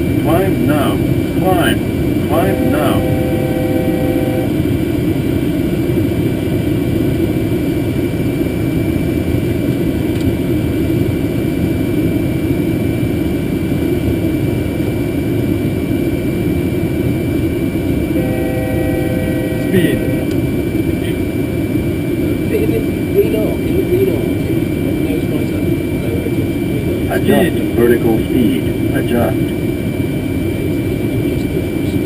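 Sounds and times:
faint high whine: 0:00.0 - 0:05.2, 0:17.9 - 0:29.7
rushing rumble of engine and airflow: 0:00.0 - 0:32.0
brief steady tone: 0:02.3 - 0:04.6, 0:18.2 - 0:20.4.

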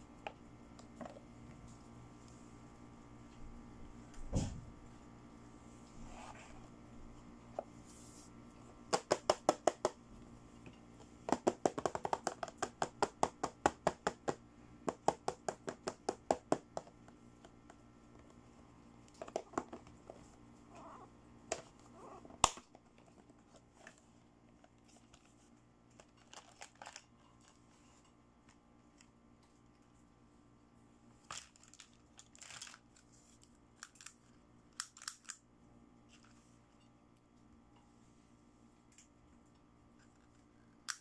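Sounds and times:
fingers tapping plastic case: 0:11.3 - 0:16.9.

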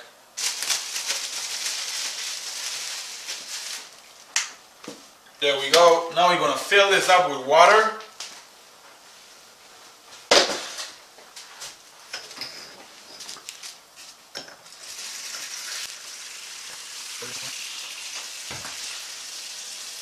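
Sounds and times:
plastic bag rustling: 0:00.4 - 0:04.4.

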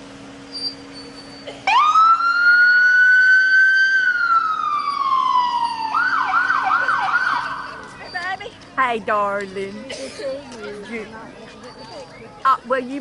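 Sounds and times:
electronic police siren: 0:01.7 - 0:07.8.

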